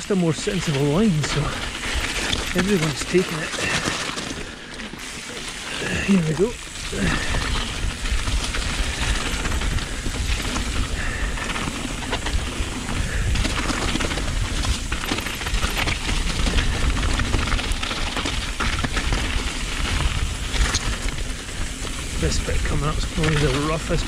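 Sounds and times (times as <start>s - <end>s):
bike rattling: 0.0s - 24.0s
tyres crunching over stones: 0.1s - 24.0s
wind rumble on microphone: 5.6s - 24.0s.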